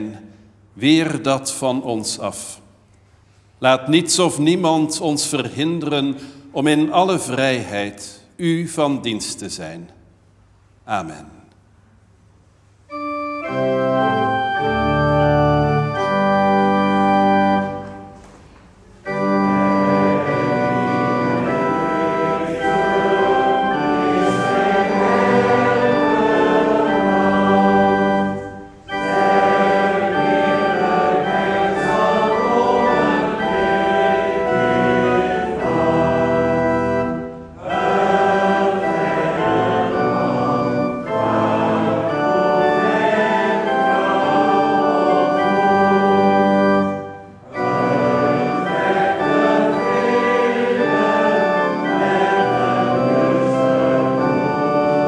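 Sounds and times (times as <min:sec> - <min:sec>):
pipe organ playing: 0:03.6 - 0:09.9, 0:12.5 - 0:55.0
congregation singing a hymn: 0:12.9 - 0:18.3, 0:19.0 - 0:55.0.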